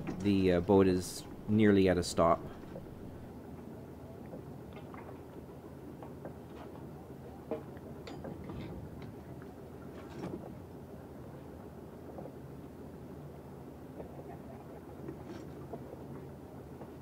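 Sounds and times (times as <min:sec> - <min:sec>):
knocks of gear against boat: 0:00.0 - 0:01.6
boat engine idling: 0:00.0 - 0:03.4.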